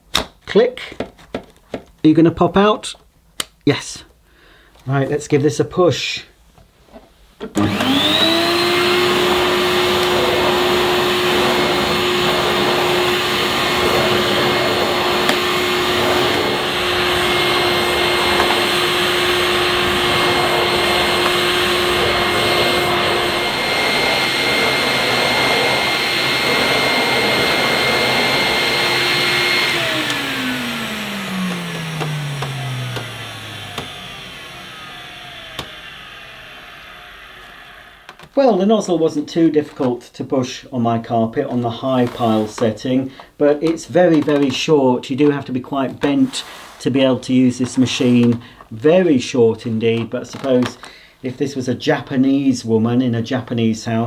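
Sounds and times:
vacuum cleaner motor whining: 0:07.4 - 0:38.6, 0:42.0 - 0:45.3, 0:47.5 - 0:50.9
vacuum nozzle on carpet: 0:07.5 - 0:38.4, 0:41.7 - 0:42.8.

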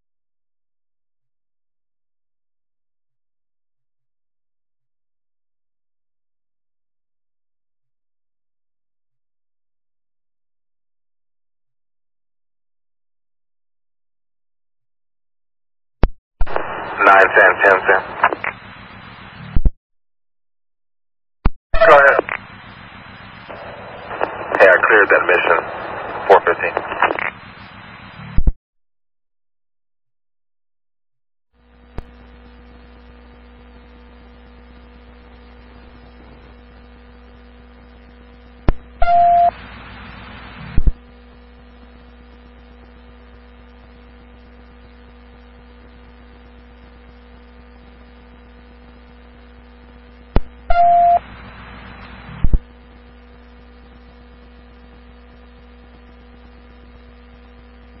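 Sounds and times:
radio click: 0:16.0 - 0:19.7, 0:21.8 - 0:28.5, 0:50.3 - 0:50.5
electrical hum: 0:16.4 - 0:19.7, 0:21.8 - 0:28.5, 0:31.6 - 0:58.0
radio static: 0:16.4 - 0:19.7, 0:21.8 - 0:28.5, 0:31.7 - 0:58.0.

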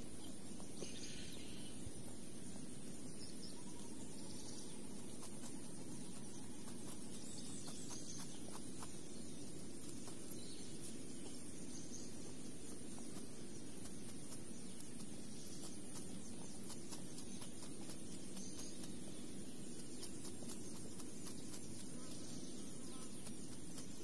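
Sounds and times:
insects chirring: 0:00.0 - 0:24.0
low rural background noise: 0:00.0 - 0:24.0
faint light ticks: 0:12.4 - 0:24.0.

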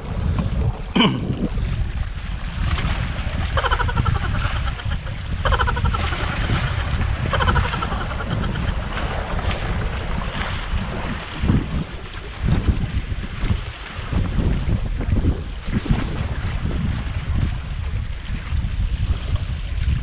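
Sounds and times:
wind buffeting microphone: 0:00.0 - 0:20.0
short pulsing sounds: 0:03.6 - 0:09.0.

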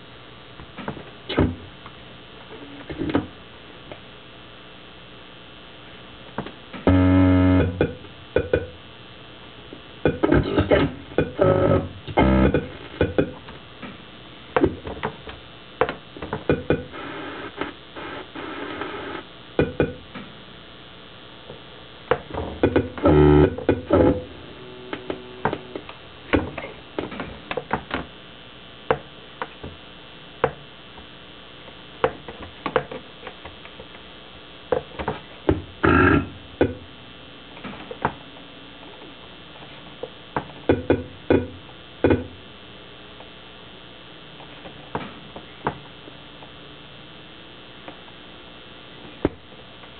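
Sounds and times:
faint steady hum: 0:00.0 - 0:49.9
electronic clicks and glitchy bursts: 0:06.8 - 0:08.9, 0:09.9 - 0:13.5, 0:14.7 - 0:20.2, 0:21.0 - 0:27.7, 0:35.8 - 0:36.9.

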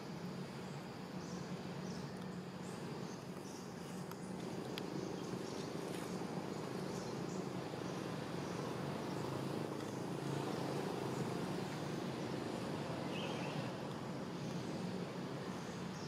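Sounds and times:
faint insect ticks: 0:00.0 - 0:16.0
outdoor background drone: 0:00.0 - 0:16.0.

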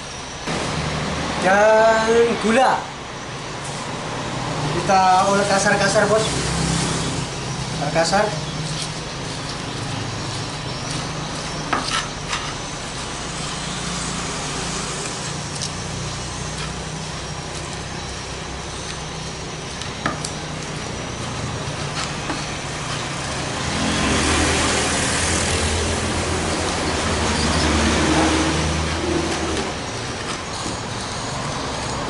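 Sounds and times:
low mechanical hum: 0:02.2 - 0:32.0
stone pestle crushing in mortar: 0:08.6 - 0:12.7.

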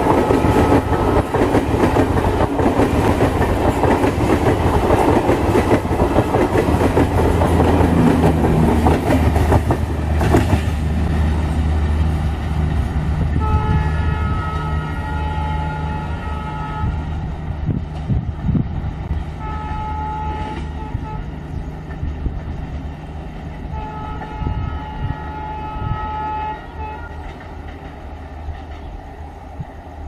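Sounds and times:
two-note locomotive horn: 0:00.0 - 0:01.5, 0:13.3 - 0:17.4, 0:19.4 - 0:21.4, 0:23.7 - 0:27.3
train rumbling: 0:00.0 - 0:30.0.

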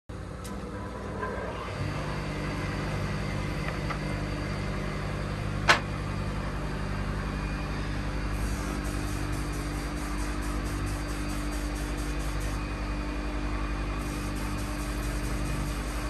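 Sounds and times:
low motor hum: 0:00.1 - 0:16.0.

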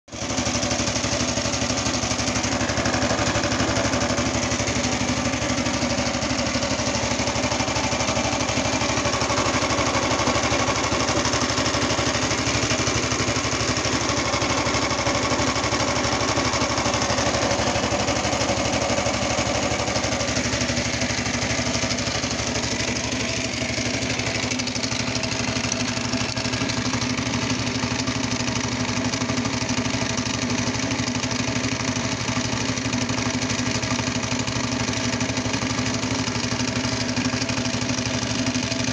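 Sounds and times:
garden tractor engine running: 0:00.1 - 0:38.9.

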